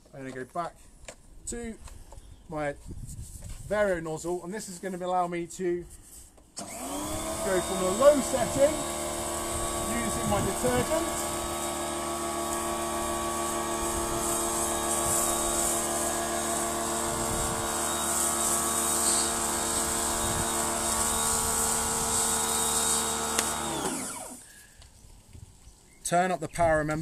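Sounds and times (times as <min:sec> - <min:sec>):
pressure washer motor humming: 0:06.6 - 0:24.4.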